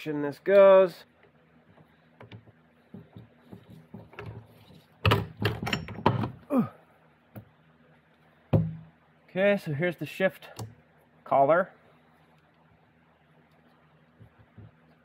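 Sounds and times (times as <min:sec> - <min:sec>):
metal clunks and knocks: 0:02.2 - 0:06.4, 0:08.5 - 0:08.9.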